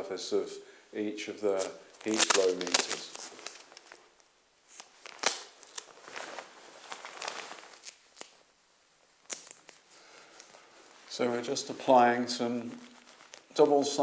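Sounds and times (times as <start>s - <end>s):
tape handling rustles and clicks: 1.6s - 8.4s, 9.2s - 11.1s, 12.8s - 13.8s.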